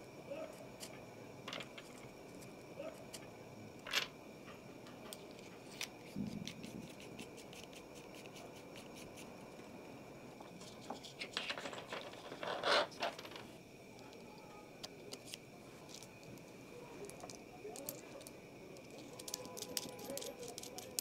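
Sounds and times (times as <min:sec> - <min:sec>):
plastic and metal parts clicking: 0:17.1 - 0:21.0.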